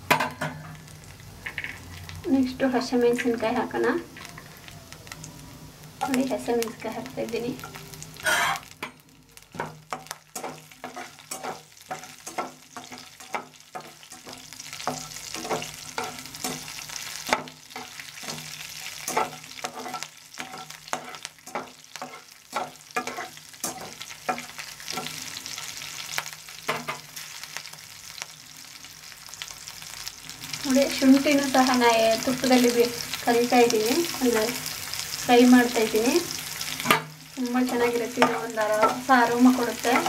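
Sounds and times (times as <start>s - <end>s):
food sizzling in hot oil: 0.0s - 40.0s
spatula scraping and tapping pan: 7.6s - 27.1s, 36.8s - 40.0s.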